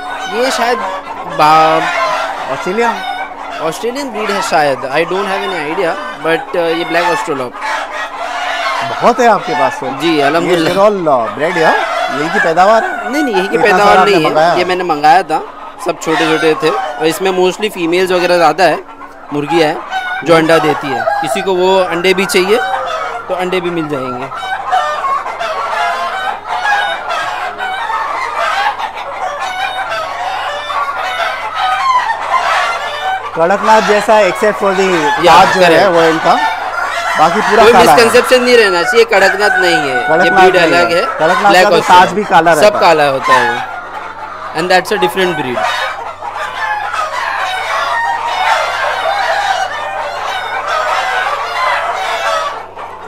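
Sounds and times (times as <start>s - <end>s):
chickens calling: 0.0s - 53.0s.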